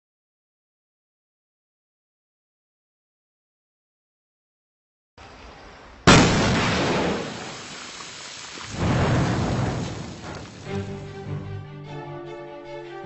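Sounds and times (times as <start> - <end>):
loud rumbling boom: 6.1 - 7.7, 8.7 - 10.8
music with held notes: 10.7 - 13.0.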